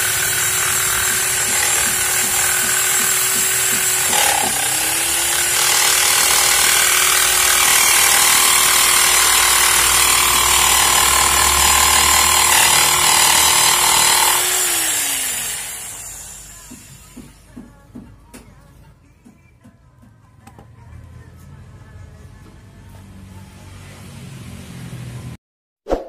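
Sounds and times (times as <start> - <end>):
electric jigsaw cutting wood: 0.0 - 16.8.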